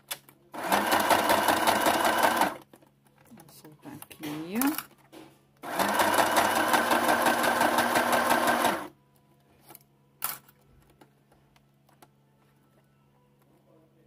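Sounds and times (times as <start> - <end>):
sewing machine stitching: 0.6 - 2.6, 5.6 - 8.9.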